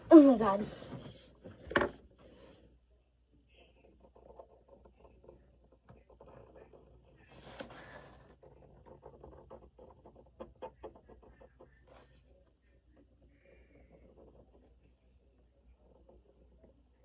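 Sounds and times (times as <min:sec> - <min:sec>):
marker scratching on paper: 0:03.6 - 0:12.3.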